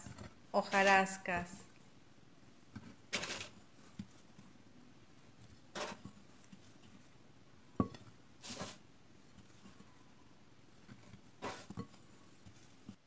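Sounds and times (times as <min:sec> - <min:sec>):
gritty sugar rustles: 0:02.8 - 0:07.2, 0:08.4 - 0:09.9, 0:10.7 - 0:13.0.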